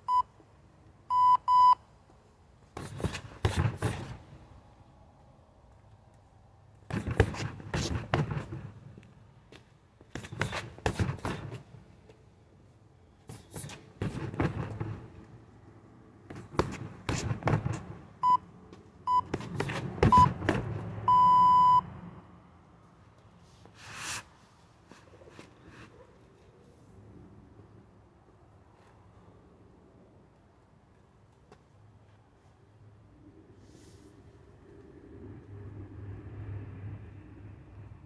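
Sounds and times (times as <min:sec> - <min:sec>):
punches thudding on heavy bag: 0:10.1 - 0:11.6, 0:13.6 - 0:15.1, 0:16.3 - 0:18.0
electronic timer beeping: 0:21.1 - 0:21.8.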